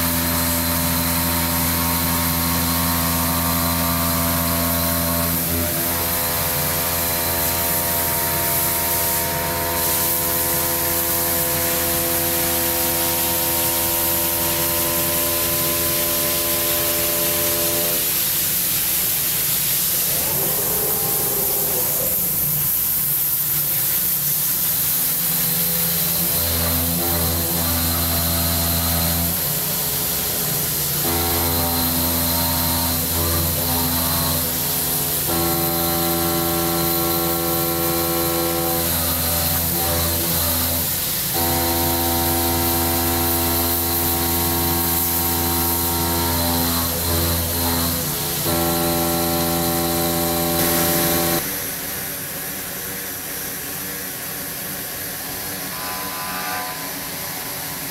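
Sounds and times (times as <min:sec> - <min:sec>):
milling machine hum: 0:00.0 - 0:51.6
coolant spray hiss: 0:17.2 - 0:26.8.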